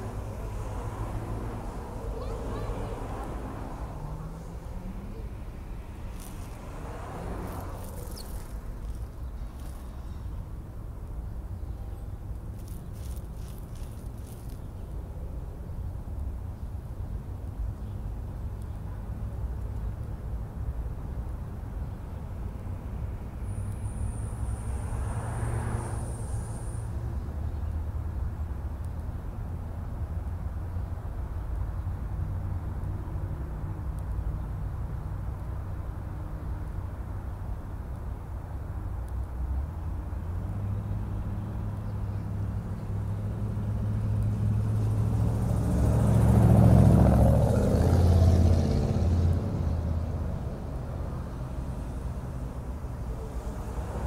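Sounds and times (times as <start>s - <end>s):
vehicle passing: 0.0s - 10.5s, 12.6s - 14.6s, 24.0s - 27.2s, 42.3s - 54.0s.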